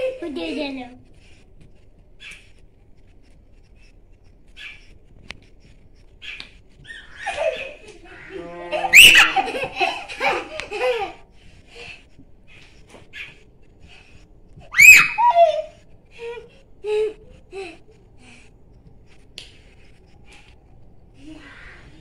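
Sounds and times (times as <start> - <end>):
children laughing: 0.0 - 1.0, 6.8 - 12.1, 14.7 - 18.5
child squealing: 8.1 - 9.5, 14.7 - 16.3.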